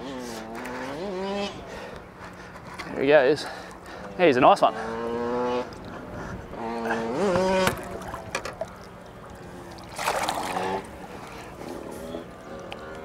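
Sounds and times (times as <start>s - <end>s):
fish splashing in water: 7.5s - 13.0s.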